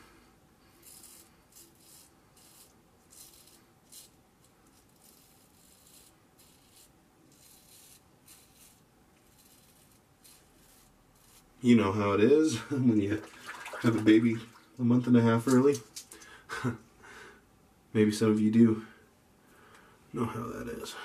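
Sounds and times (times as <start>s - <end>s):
razor scraping stubble: 0.8s - 11.5s.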